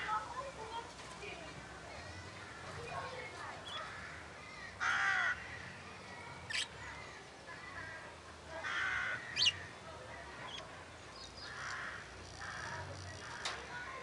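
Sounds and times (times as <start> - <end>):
bird squawks and chirps: 6.5 - 6.8, 9.1 - 9.7
budgerigars chattering softly: 9.2 - 9.7.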